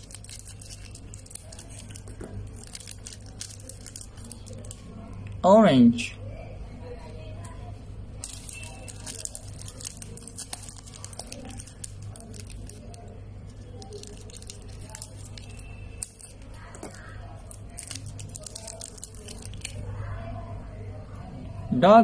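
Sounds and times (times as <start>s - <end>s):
plastic wrapper crinkling and tearing: 0.0s - 5.4s, 8.2s - 20.2s.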